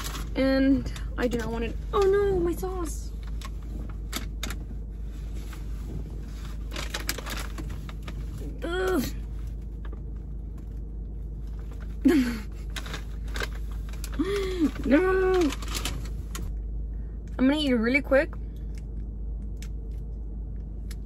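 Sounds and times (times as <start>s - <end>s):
paper bag rustling: 0.0s - 0.4s, 5.0s - 8.6s, 11.5s - 16.5s
low hum in car cabin: 0.0s - 21.0s.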